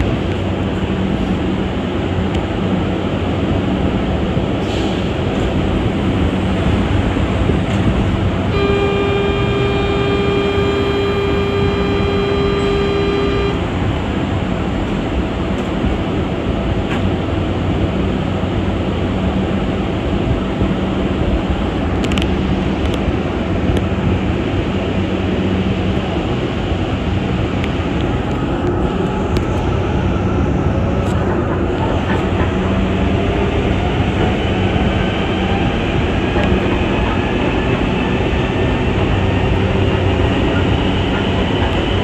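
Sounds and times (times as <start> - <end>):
train rumble and hiss: 0.0 - 42.0
steady tone: 8.5 - 14.0.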